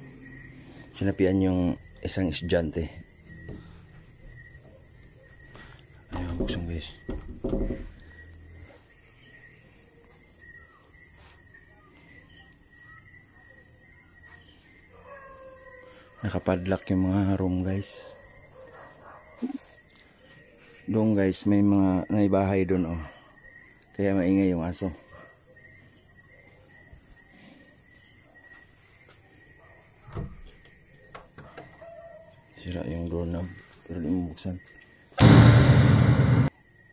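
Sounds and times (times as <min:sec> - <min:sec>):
crickets trilling: 0:00.0 - 0:35.2, 0:36.5 - 0:36.9
knock: 0:06.1 - 0:08.0.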